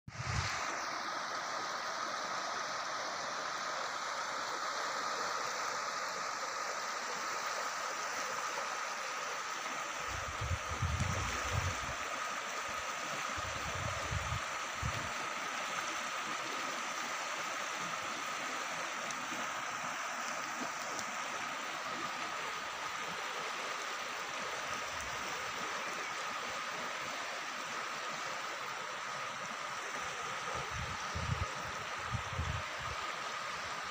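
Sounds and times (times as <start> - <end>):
river water rushing: 0.1 - 33.9.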